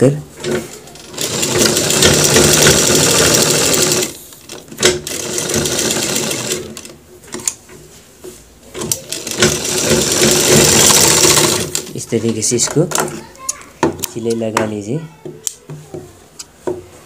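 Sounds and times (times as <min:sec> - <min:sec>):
sewing machine stitching: 0:00.4 - 0:06.9, 0:08.8 - 0:12.0.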